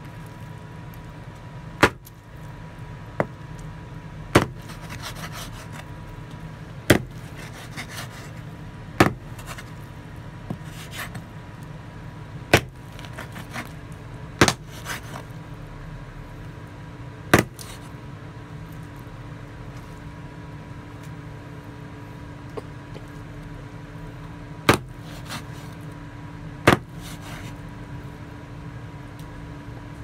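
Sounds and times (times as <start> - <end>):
cleaver chopping on wooden board: 1.8 - 2.1, 4.3 - 5.7, 6.9 - 8.2, 9.0 - 9.5, 12.5 - 13.7, 14.4 - 15.2, 17.4 - 17.8, 24.7 - 25.4, 26.7 - 27.3
blade scraping on board: 4.4 - 5.9, 6.9 - 9.8, 10.5 - 11.2, 12.9 - 13.8, 14.4 - 15.3, 17.4 - 17.9, 25.0 - 25.8, 26.7 - 27.6.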